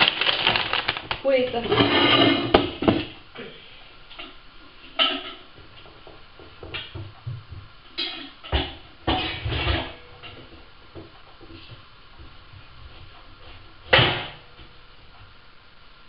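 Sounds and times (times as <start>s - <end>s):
pots and pans clattering: 0.0s - 3.2s, 4.2s - 7.2s, 7.9s - 11.8s.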